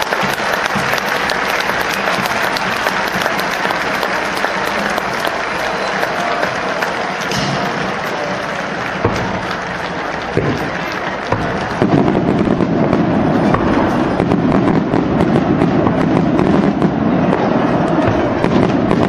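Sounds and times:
firecrackers crackling: 0.0s - 19.0s.

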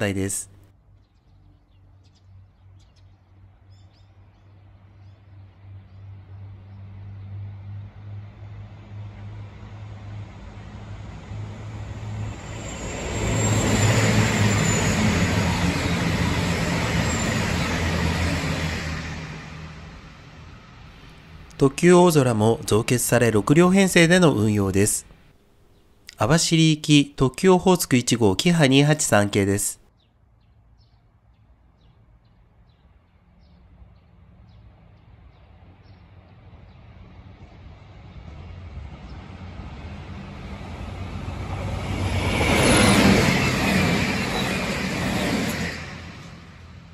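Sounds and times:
diesel train engine drone: 5.2s - 25.2s, 33.8s - 46.9s
wheels roaring on rails: 5.6s - 21.6s, 34.2s - 46.9s
faint high squeals: 12.4s - 17.9s.

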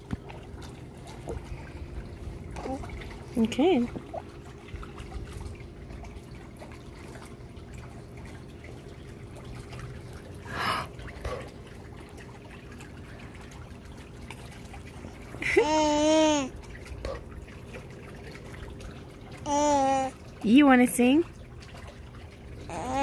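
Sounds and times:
pool water trickling and lapping: 0.0s - 23.0s
baby vocalizing: 2.6s - 2.9s, 15.6s - 16.5s, 19.5s - 20.1s, 22.7s - 23.0s.

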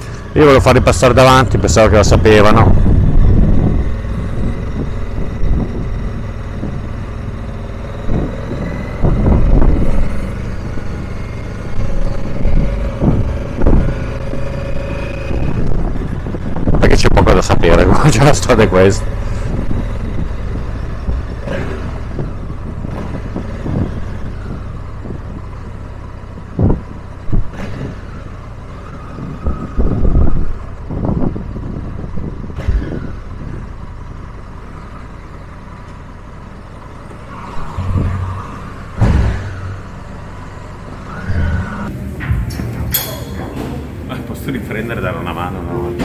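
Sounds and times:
short knocks and bumps: 12.5s - 13.9s.

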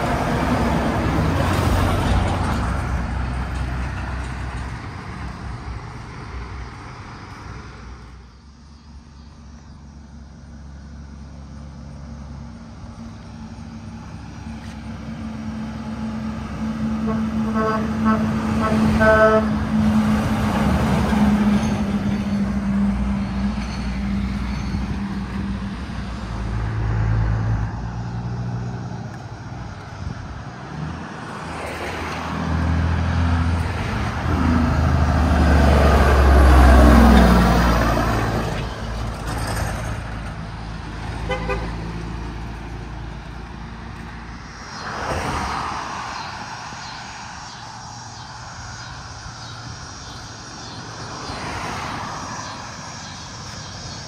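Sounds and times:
dump truck engine moving off: 0.0s - 54.0s
truck diesel passing close: 0.0s - 54.0s
car swishing by: 43.6s - 47.7s.

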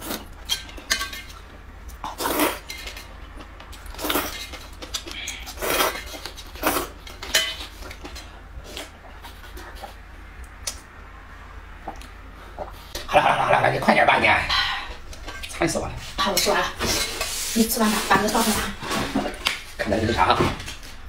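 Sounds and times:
person slurping noodles: 2.1s - 2.6s, 5.3s - 7.0s.

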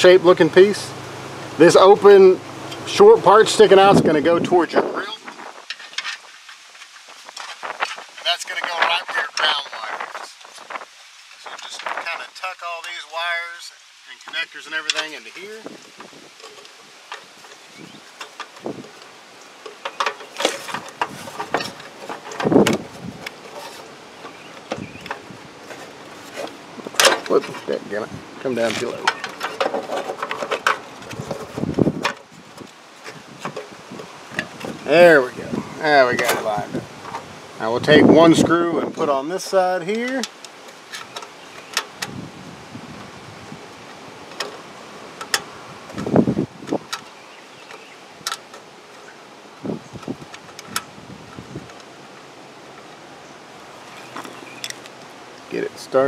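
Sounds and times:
wind rumble on microphone: 0.5s - 5.7s, 15.6s - 16.4s, 17.6s - 19.0s, 20.6s - 23.4s, 24.4s - 29.0s, 30.8s - 39.1s, 42.0s - 44.2s, 45.5s - 47.1s, 49.6s - 51.8s
scrape of handling: 20.2s - 24.0s, 25.6s - 27.8s.

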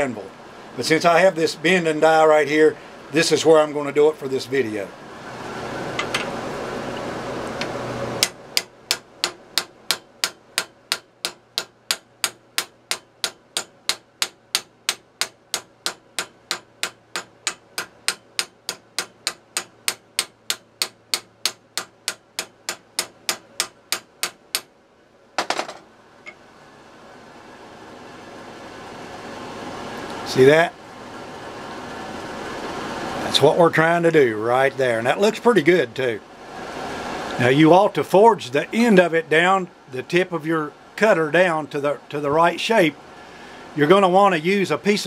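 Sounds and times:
hammer striking hot steel: 7.6s - 24.7s.

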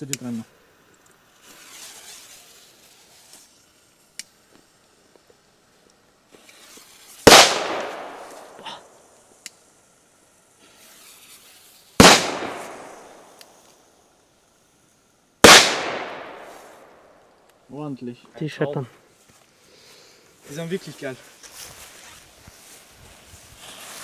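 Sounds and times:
faint hiss: 0.0s - 24.0s
firecracker bangs: 7.2s - 8.9s, 12.0s - 13.4s, 15.4s - 17.0s.

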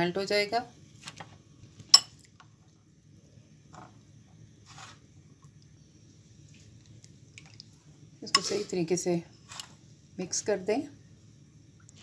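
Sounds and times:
spoon scraping bowl: 4.6s - 5.1s, 8.3s - 8.8s, 9.4s - 9.8s.

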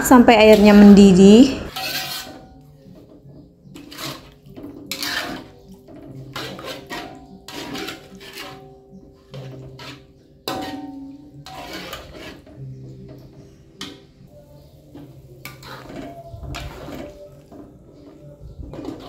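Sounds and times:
metal spatula scraping wok: 0.0s - 19.0s
soft background music: 0.0s - 19.0s.

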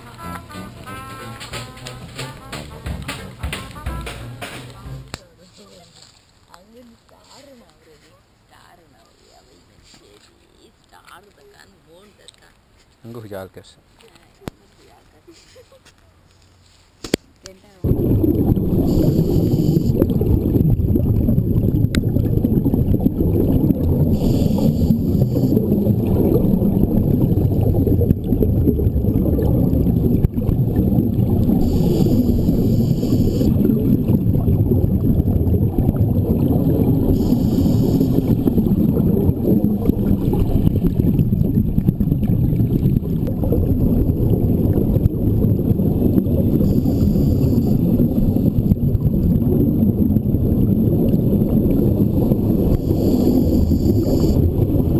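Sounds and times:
low underwater rumble: 0.0s - 5.5s, 17.8s - 54.9s
regulator exhalation bubbling: 17.9s - 54.9s.

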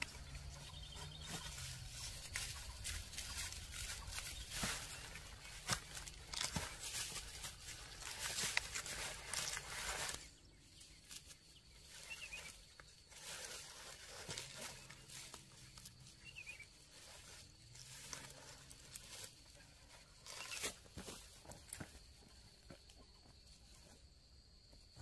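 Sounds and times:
dry leaves rustling and tearing: 0.0s - 21.0s
footsteps on dry leaf litter: 0.0s - 22.4s.

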